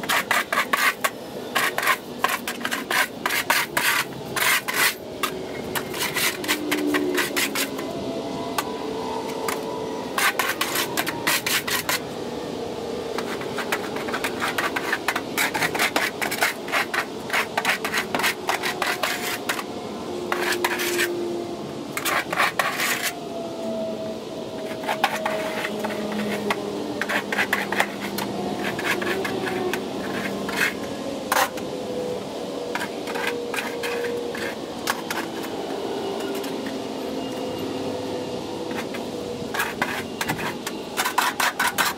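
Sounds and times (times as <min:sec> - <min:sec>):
plastic shovel scraping concrete: 0:00.0 - 0:07.9, 0:10.2 - 0:12.0, 0:13.2 - 0:19.7, 0:20.3 - 0:21.1, 0:21.9 - 0:23.2, 0:24.6 - 0:31.6, 0:32.8 - 0:35.5, 0:38.7 - 0:41.9.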